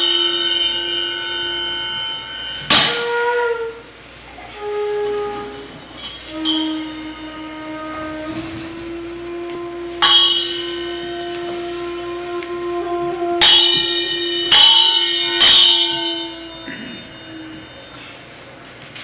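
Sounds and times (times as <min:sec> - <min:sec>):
bamboo flute low note: 0:00.0 - 0:18.2
hand bell ringing: 0:10.0 - 0:11.2, 0:13.4 - 0:18.6.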